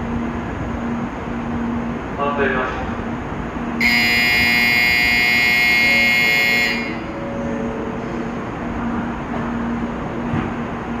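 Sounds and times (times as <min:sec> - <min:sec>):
low hum from waiting train: 0:00.0 - 0:11.0
electronic departure bell trill: 0:03.8 - 0:07.5.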